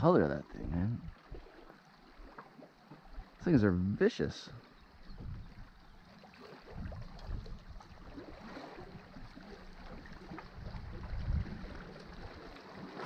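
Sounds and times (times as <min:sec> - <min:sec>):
wind rumbling on microphone: 0:04.8 - 0:13.0.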